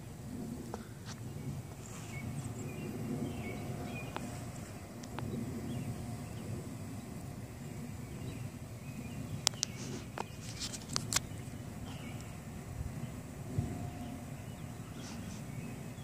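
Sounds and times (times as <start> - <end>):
steady low rumble: 0.0 - 16.0
sharp clicks: 9.4 - 11.5.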